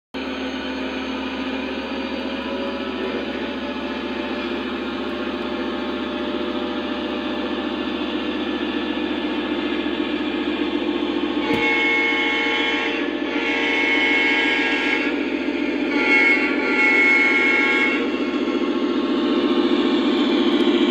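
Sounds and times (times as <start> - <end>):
diesel engine rumble: 0.2 - 20.9
train horn blasts: 9.1 - 18.4.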